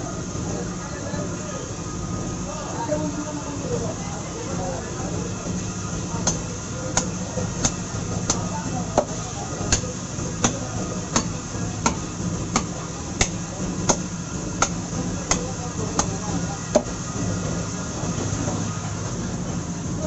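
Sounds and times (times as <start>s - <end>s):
blade striking chopping block: 11.2s - 14.0s.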